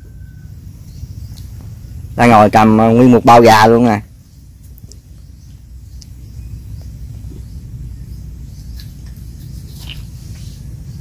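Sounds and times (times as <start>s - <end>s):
faint high chirps: 0.0s - 2.0s
low rumble: 4.0s - 11.0s.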